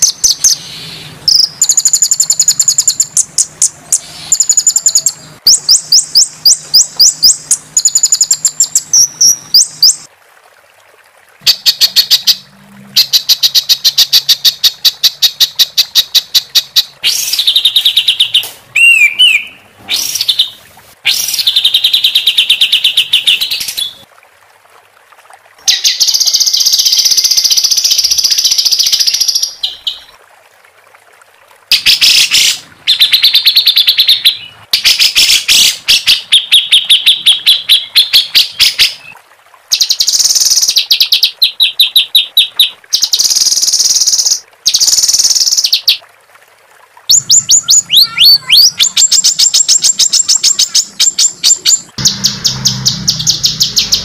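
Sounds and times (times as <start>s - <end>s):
songbird singing trills: 0.0s - 10.1s, 13.0s - 20.6s, 47.1s - 54.0s.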